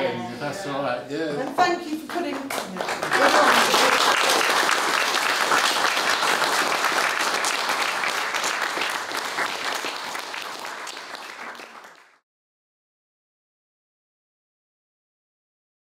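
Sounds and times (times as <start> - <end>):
audience applauding: 1.4 - 12.2.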